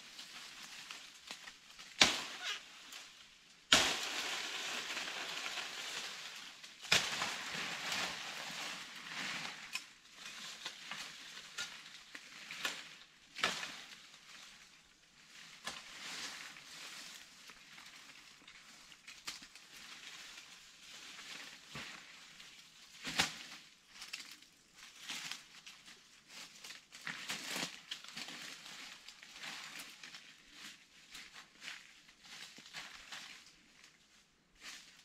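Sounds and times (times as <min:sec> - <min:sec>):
sharp crack: 0:03.7 - 0:05.2
dry plant material rustling: 0:16.0 - 0:35.0.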